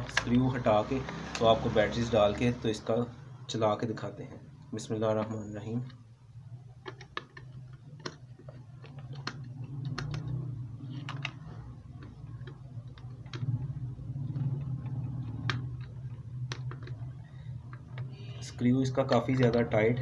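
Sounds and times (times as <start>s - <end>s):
low hum: 8.0s - 18.7s.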